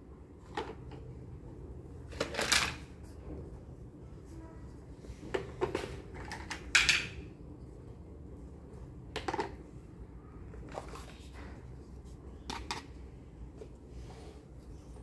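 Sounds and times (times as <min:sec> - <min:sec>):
plastic toys clicking and knocking: 0:00.4 - 0:01.1, 0:05.3 - 0:07.3, 0:09.1 - 0:09.7, 0:12.4 - 0:13.0.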